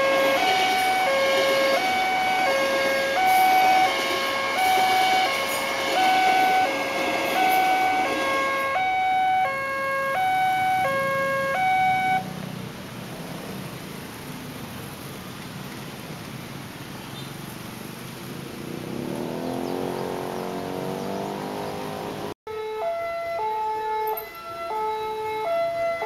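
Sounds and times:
level crossing alarm two-tone: 0.0s - 12.2s
electric train passing: 0.0s - 16.9s.

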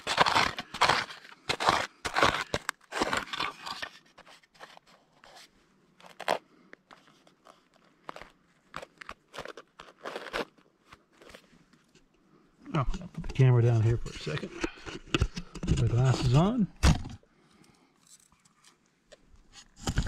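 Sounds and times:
plastic scoop crunching gravel: 0.0s - 4.8s, 6.0s - 6.4s, 7.4s - 11.4s
fingers scratching through dirt: 0.0s - 5.4s.

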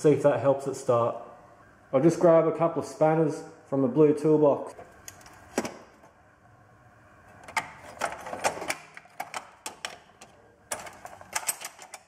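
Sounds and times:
spanners clinking in toolbox: 7.8s - 12.0s.

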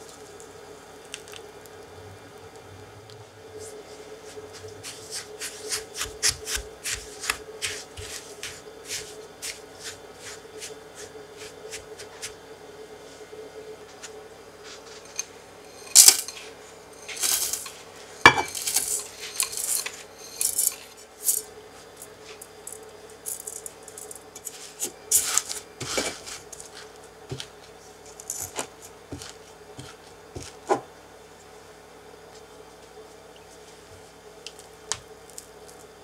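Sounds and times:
metal utensil scraping and clinking: 14.9s - 21.5s.

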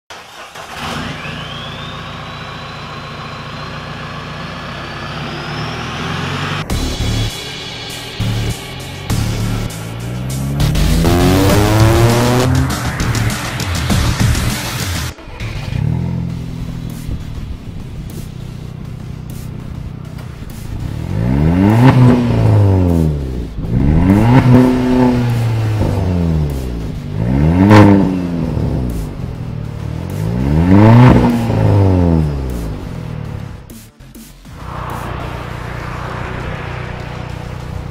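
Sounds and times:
low engine-like drone: 0.8s - 20.9s, 34.5s - 37.9s
high rising whistle: 1.1s - 2.4s, 11.4s - 14.8s, 34.5s - 37.9s.

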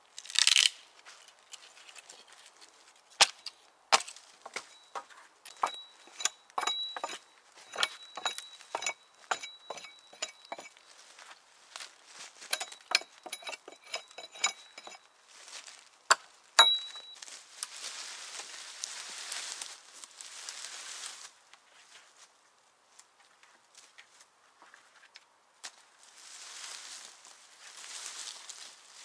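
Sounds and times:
hand tool striking metal: 3.2s - 10.8s, 12.5s - 15.0s, 16.1s - 17.2s
steady scraping: 4.4s - 10.8s, 12.4s - 15.1s.

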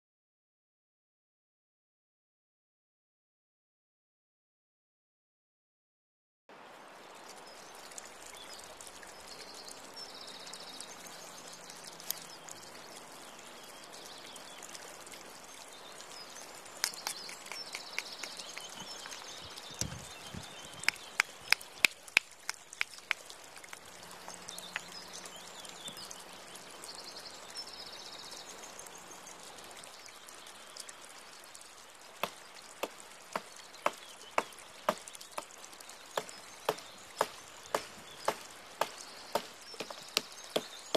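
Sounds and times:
stone cleaver chopping branch: 16.8s - 18.9s, 32.2s - 35.5s, 36.2s - 40.9s.

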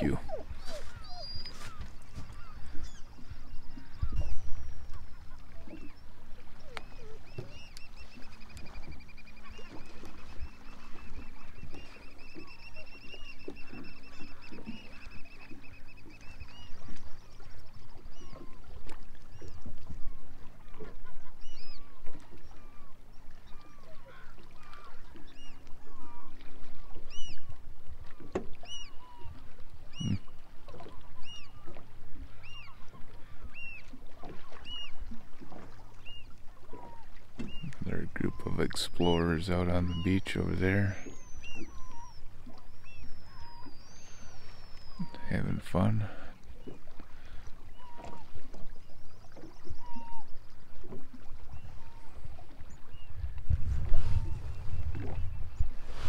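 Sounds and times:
bird piping trill: 0.0s - 4.9s, 37.4s - 45.2s.

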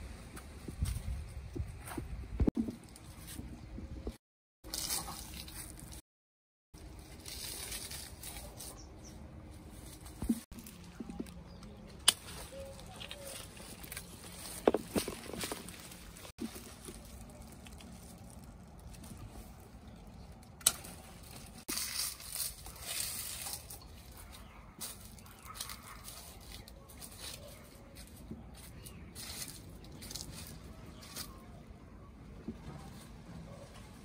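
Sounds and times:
leaves and bags rustling: 4.7s - 6.0s, 6.8s - 31.7s
pruning shears snip: 12.0s - 14.1s, 20.4s - 21.4s.

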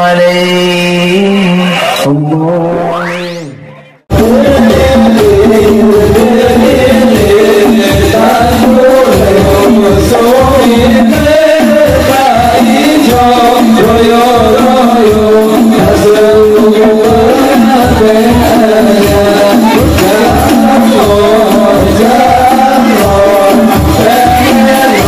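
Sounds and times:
men singing together: 4.1s - 25.0s.

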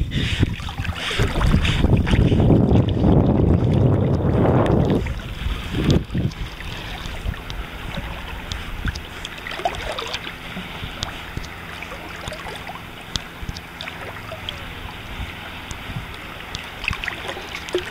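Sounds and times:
wind gust on microphone: 0.0s - 11.7s, 14.2s - 16.4s
water lapping and splashing: 0.0s - 17.9s
water drips and trickles: 0.5s - 17.9s.

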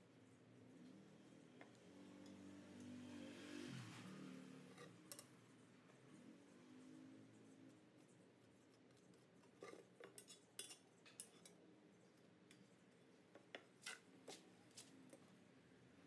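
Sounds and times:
steel ruler clinking on metal: 9.7s - 11.6s.

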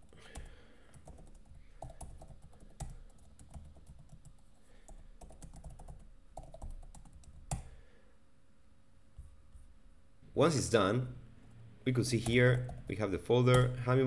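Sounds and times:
computer keyboard typing: 0.0s - 7.7s, 12.2s - 12.9s.

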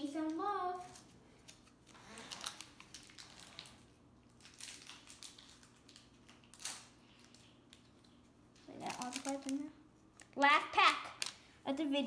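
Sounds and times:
cardboard and packaging crinkling: 0.7s - 10.3s.

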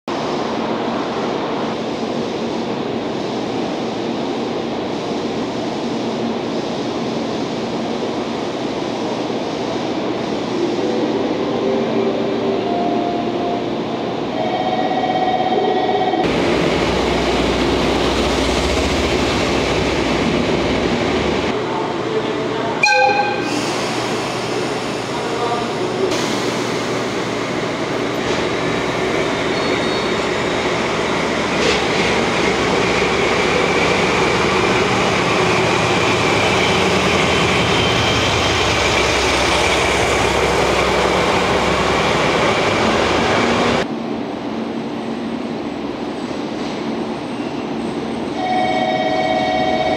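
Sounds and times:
locomotive engine rumbling: 16.3s - 43.8s
multi-pitch horn tone: 22.8s - 23.5s.

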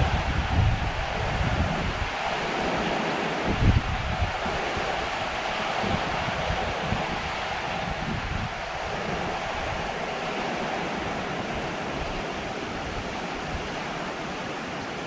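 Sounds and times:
heavy rain pouring: 0.0s - 15.0s.

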